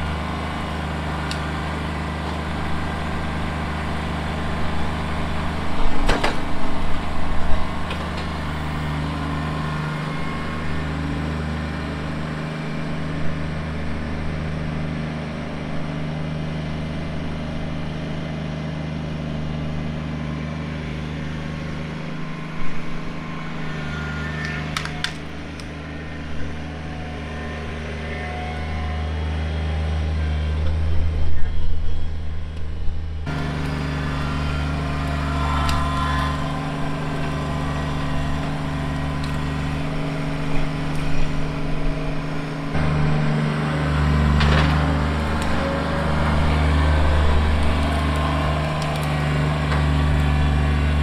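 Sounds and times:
loud clattering and crackling: 0.0 - 9.5, 42.4 - 51.0
tractor diesel engine running: 0.0 - 51.0.

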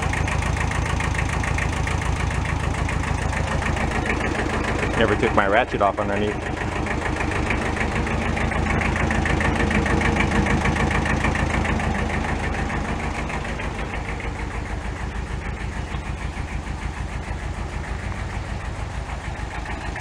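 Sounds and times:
small engine idling: 0.0 - 20.0.

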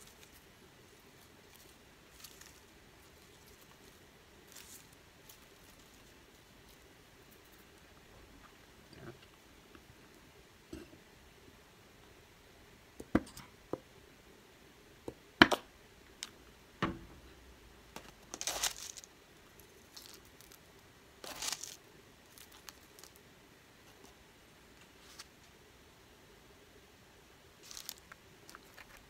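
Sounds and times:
fried onions rustling: 0.0 - 10.2, 16.9 - 23.3, 27.6 - 29.0.

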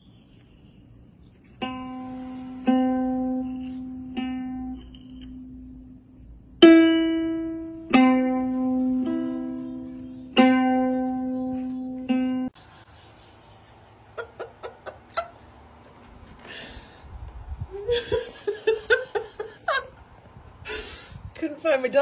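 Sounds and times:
ukulele notes plucked: 1.6 - 12.6.

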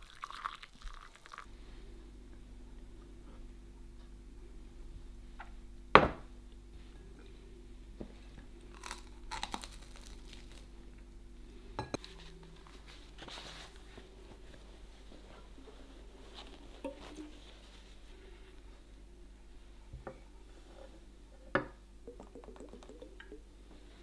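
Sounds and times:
mug knocking on table: 6.0 - 6.2
chewing toast: 8.7 - 10.7.

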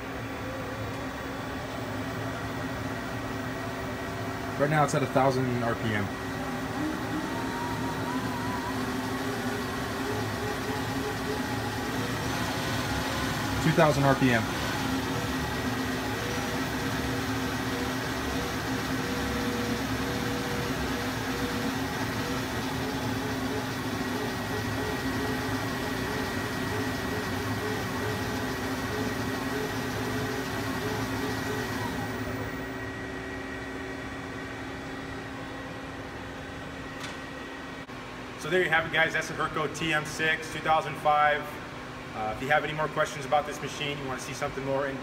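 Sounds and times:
lathe spindle humming and whining: 0.0 - 39.2
idling machine hum: 0.0 - 39.6.

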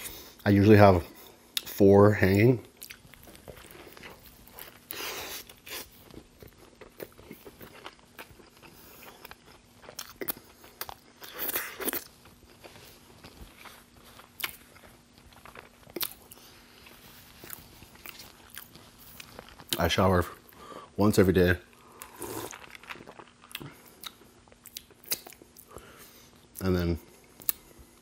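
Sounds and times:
chewing with wet mouth clicks: 2.7 - 19.9, 22.0 - 25.8.

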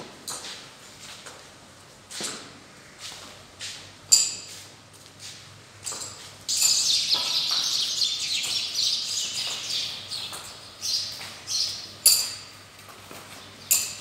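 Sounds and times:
small birds chirping: 6.5 - 12.4.

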